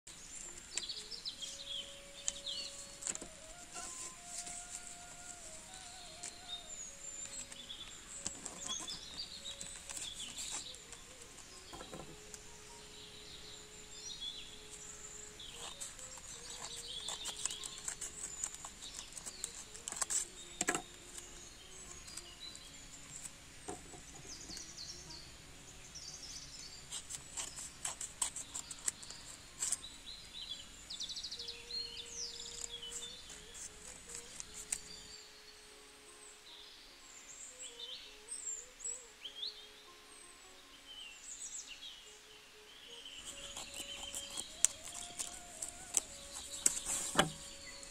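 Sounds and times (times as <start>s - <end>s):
birds chirping: 0.1s - 47.9s
paper rustling: 0.3s - 6.6s, 7.2s - 12.2s, 15.4s - 21.4s, 43.2s - 47.9s.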